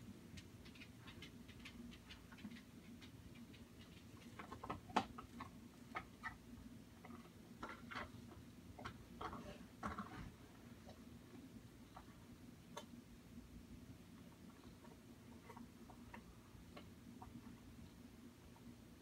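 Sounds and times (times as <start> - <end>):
low steady hum: 0.0 - 19.0
light clicks and ticks: 0.3 - 6.4.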